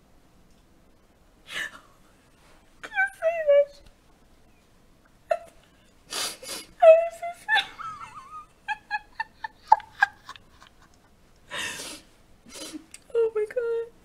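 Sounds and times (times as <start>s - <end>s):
woman laughing hard: 7.4s - 11.9s
woman gasping for breath: 11.5s - 12.1s.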